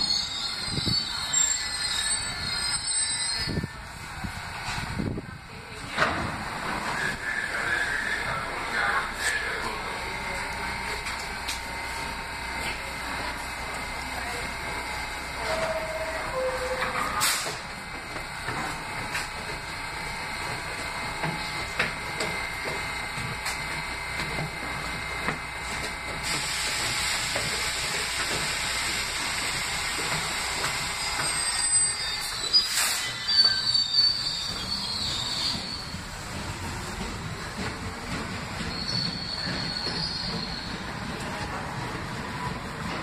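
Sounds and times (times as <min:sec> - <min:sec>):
high wheel squeal: 0:00.0 - 0:03.8, 0:15.4 - 0:17.6, 0:30.9 - 0:36.4, 0:38.6 - 0:41.0
subway train motor and wheels: 0:00.0 - 0:43.0.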